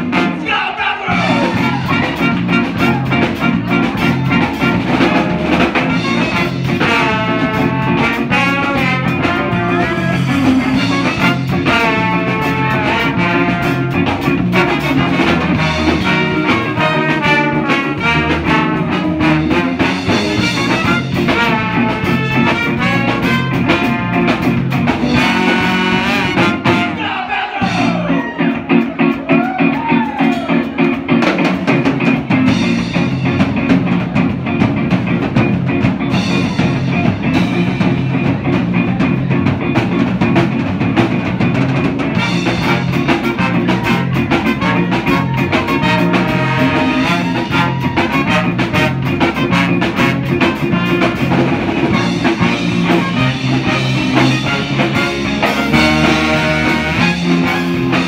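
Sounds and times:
horn section riffs: 0:00.0 - 0:28.9, 0:41.2 - 0:58.0
bending lead guitar notes: 0:00.0 - 0:58.0
live band playing: 0:00.0 - 0:58.0.

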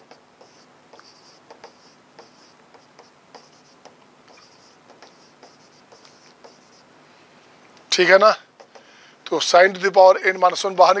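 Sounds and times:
pen scratching while writing: 0:00.0 - 0:06.9.

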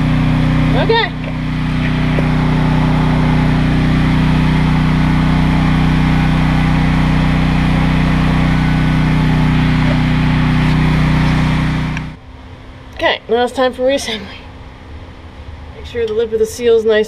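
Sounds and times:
motor humming: 0:00.0 - 0:12.2.

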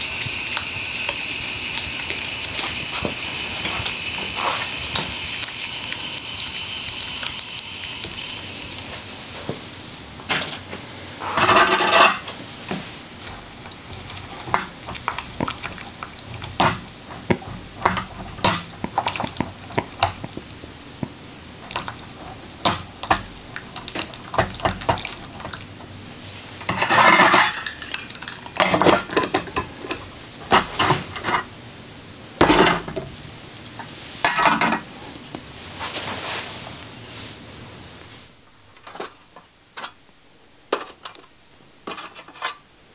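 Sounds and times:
metal pot scraping clatter: 0:11.2 - 0:12.4, 0:26.6 - 0:31.5, 0:41.9 - 0:42.6.

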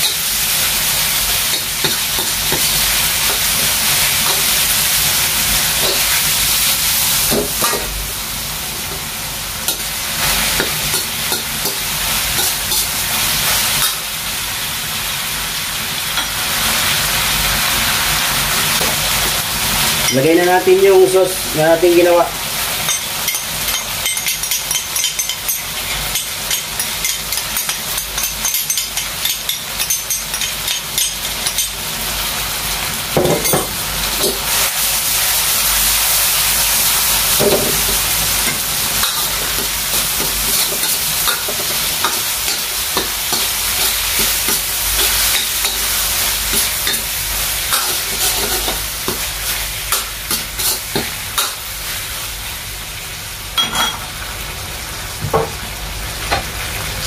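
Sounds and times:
food sizzling in a wok: 0:00.0 - 0:57.0
metal ladle scraping a wok: 0:47.7 - 0:48.8, 0:50.3 - 0:51.0.

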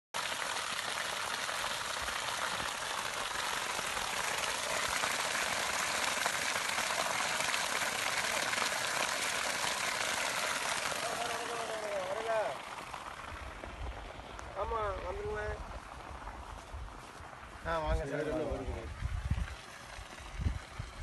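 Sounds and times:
water jet splashing on mud: 0:00.2 - 0:16.5.

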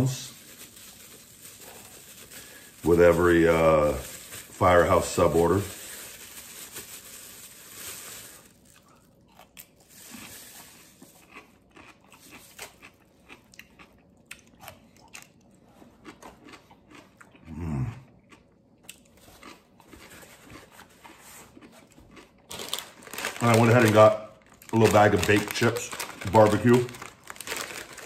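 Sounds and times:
plastic bag crinkling: 0:00.0 - 0:11.4, 0:21.6 - 0:28.0
crunching and chewing pickle: 0:00.2 - 0:28.0
low humming voice: 0:17.4 - 0:18.1.

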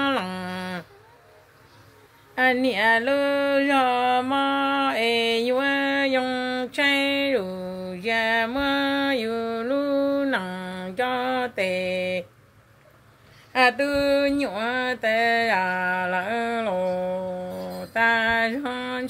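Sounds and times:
woman singing unaccompanied: 0:00.0 - 0:12.4, 0:13.5 - 0:19.0.

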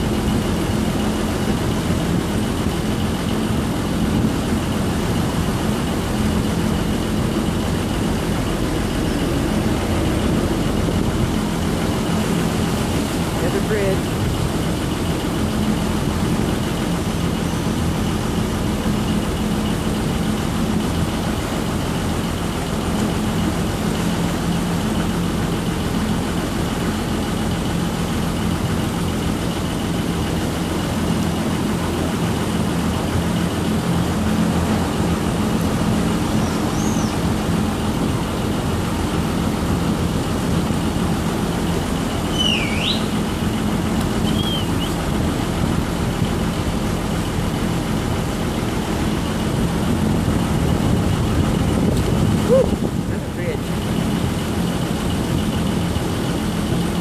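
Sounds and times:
boat engine humming: 0:00.0 - 0:57.0
water wash from wake: 0:00.0 - 0:57.0
brief high squeak: 0:42.3 - 0:43.1, 0:44.3 - 0:45.0.

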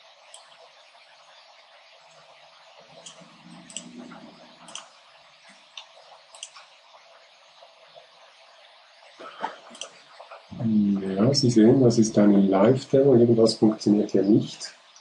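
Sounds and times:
faint steady hiss: 0:00.0 - 0:15.0
computer mouse clicks: 0:00.3 - 0:00.6, 0:03.0 - 0:04.9, 0:05.8 - 0:06.7, 0:09.7 - 0:10.0.

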